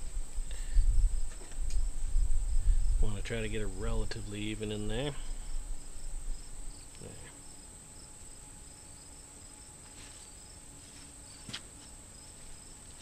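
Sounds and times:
crickets chirring: 0.0 - 13.0
soft handling noises: 9.8 - 13.0.

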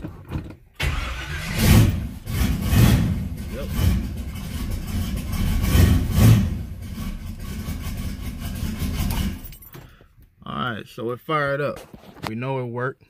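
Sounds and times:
car engine running: 1.6 - 9.4.

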